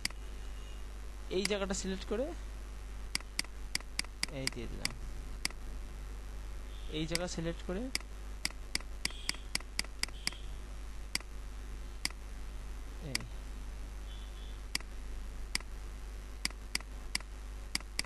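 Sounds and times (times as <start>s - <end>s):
computer mouse clicking: 16.4s - 18.0s.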